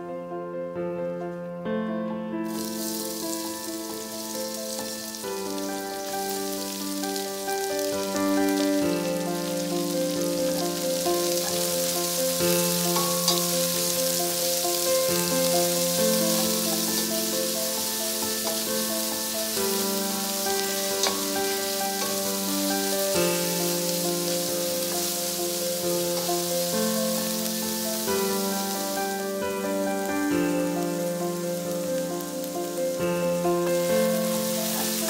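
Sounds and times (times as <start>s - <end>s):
melodic music: 0.0s - 35.0s
onion sizzling in a pan: 2.4s - 35.0s.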